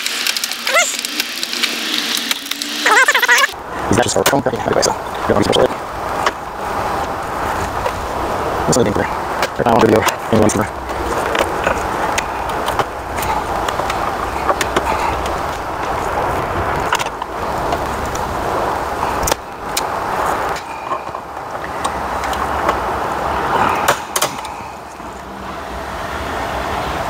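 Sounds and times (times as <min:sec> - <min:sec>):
steady background noise: 0:00.0 - 0:27.0
sharp plastic clicks: 0:23.8 - 0:24.6.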